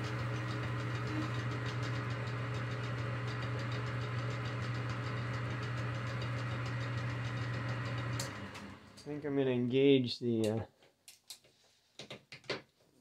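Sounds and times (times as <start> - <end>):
lathe humming: 0.0 - 9.0.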